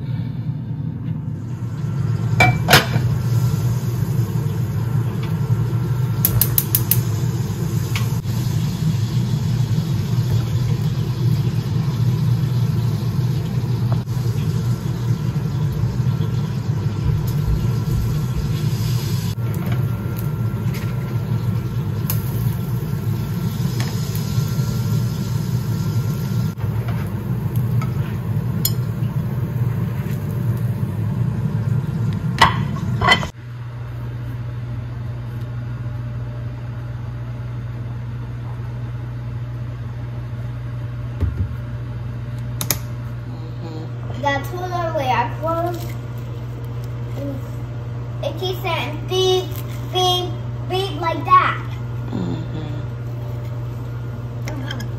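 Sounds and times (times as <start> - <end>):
steady low hum: 0.0 - 54.9.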